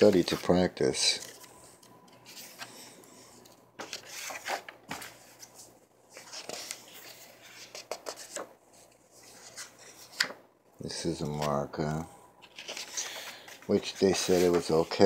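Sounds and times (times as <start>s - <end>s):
paper pages rustling: 3.8s - 10.4s, 12.4s - 15.0s.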